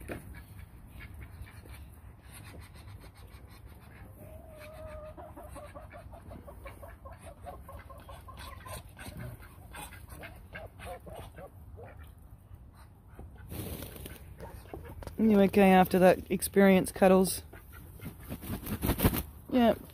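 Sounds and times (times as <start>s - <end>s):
poultry calling: 2.4s - 12.1s.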